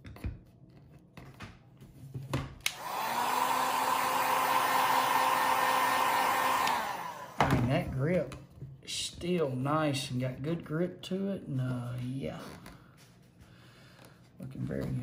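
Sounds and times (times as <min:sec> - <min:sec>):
heat gun switch click: 0:02.6 - 0:03.0, 0:06.5 - 0:07.0
heat gun blowing hum: 0:02.6 - 0:07.6.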